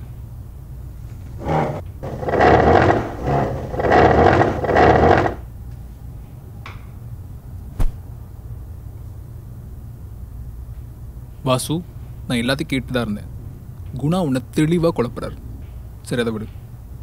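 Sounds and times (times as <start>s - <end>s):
wooden chair scraping floor: 1.3s - 5.4s.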